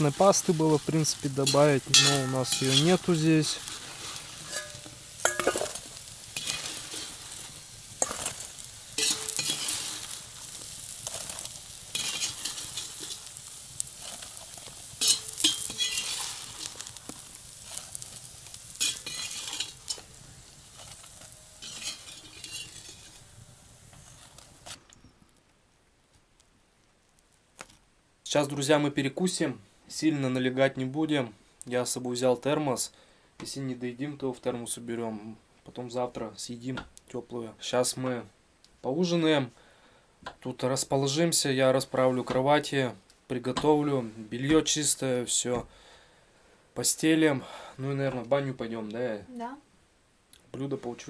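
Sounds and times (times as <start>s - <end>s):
food frying in a pan: 0.0s - 24.8s.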